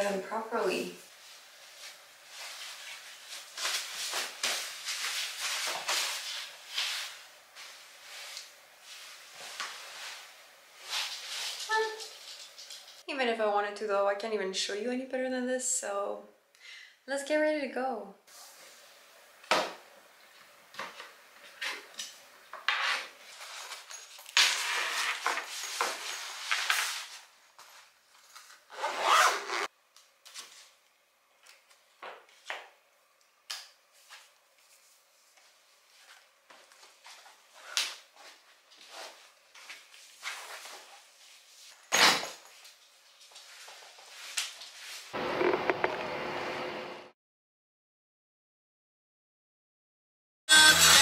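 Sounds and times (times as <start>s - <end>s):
rustling of bags and clothing: 1.1s - 13.0s, 23.2s - 29.7s.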